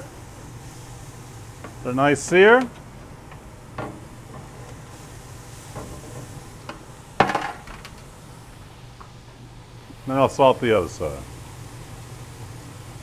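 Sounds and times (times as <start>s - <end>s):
utensils knocking on a grill: 3.7s - 4.6s, 5.7s - 8.0s.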